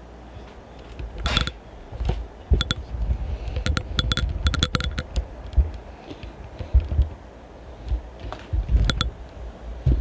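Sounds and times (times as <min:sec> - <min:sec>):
metallic clinking and jingling: 0:01.3 - 0:01.6, 0:02.6 - 0:02.8, 0:03.7 - 0:05.1, 0:08.9 - 0:09.1
handling thumps and rumble: 0:07.8 - 0:09.1, 0:09.8 - 0:10.0.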